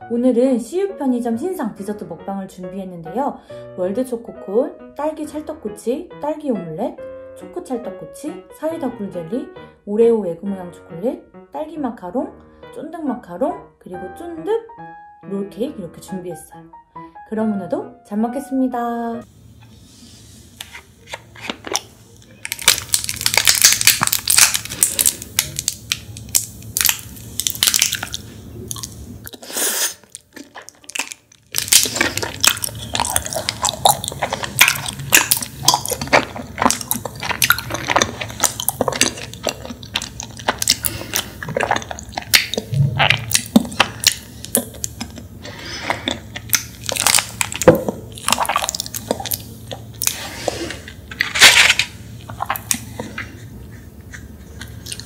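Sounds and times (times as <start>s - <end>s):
chewing jelly: 21.0s - 55.0s
small wet clicks and crackles: 21.7s - 29.0s, 30.0s - 45.3s, 45.9s - 50.2s.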